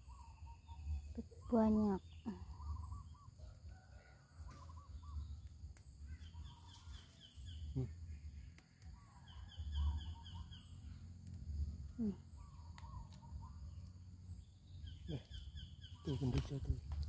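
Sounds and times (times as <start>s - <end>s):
birds chirping: 0.0s - 17.0s
chili stems snapping: 8.4s - 9.0s, 12.6s - 13.9s.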